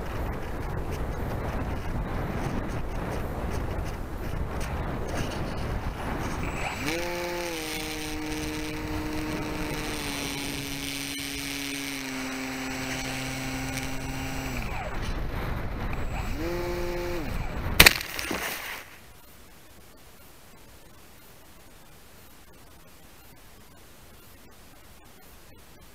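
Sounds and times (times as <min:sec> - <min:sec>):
wind noise: 0:00.0 - 0:19.0
model plane motor whining: 0:06.2 - 0:17.7.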